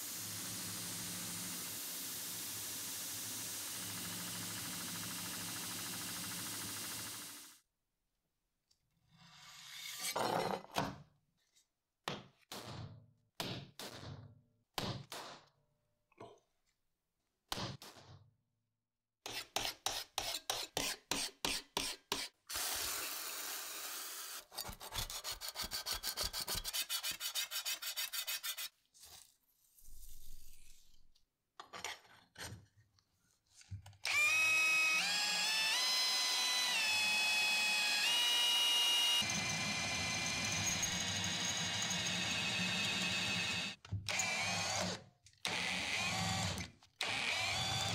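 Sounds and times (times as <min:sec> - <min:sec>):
scraping strokes on steel blade: 0:25.2 - 0:28.7
electric drill whining: 0:34.1 - 0:47.9.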